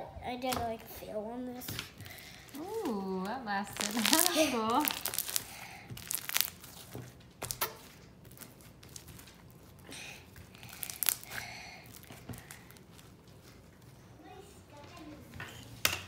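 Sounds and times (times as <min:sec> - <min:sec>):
slime squeezed with sticky pops: 0:03.7 - 0:09.3, 0:10.6 - 0:12.6.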